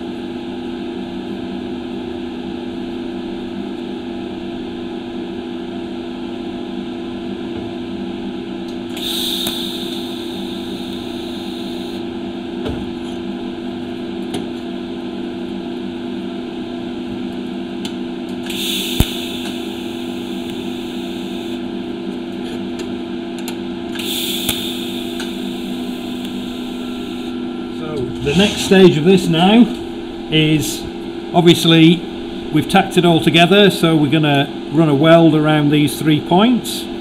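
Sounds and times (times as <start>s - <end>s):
electrical hum: 0.0s - 37.0s
welding arc hissing: 8.9s - 12.0s, 18.4s - 21.6s, 23.9s - 27.3s, 28.1s - 32.6s.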